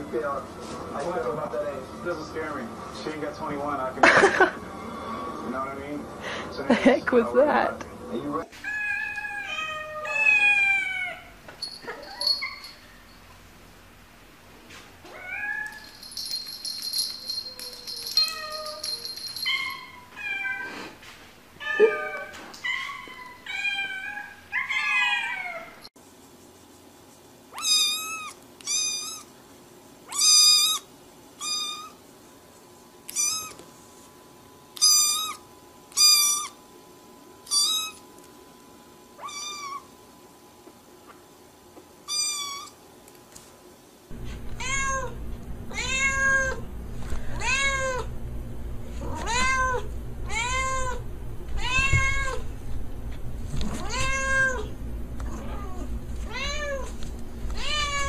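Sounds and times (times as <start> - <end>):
cats meowing: 8.6 - 12.7, 17.3 - 20.8, 21.6 - 25.8, 39.2 - 39.9, 44.2 - 48.1, 48.9 - 52.5, 53.6 - 58.0
steady low hum: 44.1 - 58.0.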